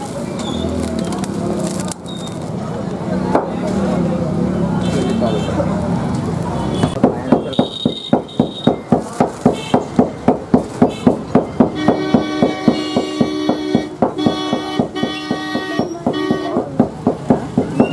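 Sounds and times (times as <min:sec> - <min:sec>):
rhythmic pounding with mallets: 0:06.9 - 0:17.9
horn blasts: 0:10.9 - 0:16.8.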